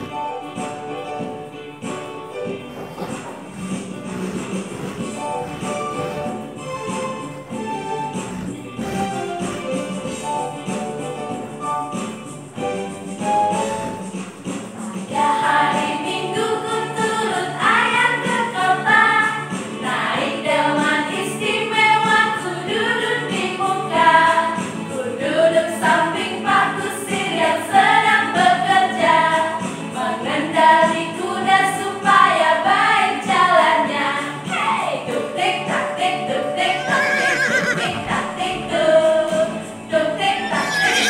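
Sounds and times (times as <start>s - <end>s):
women singing together: 14.8s - 41.0s.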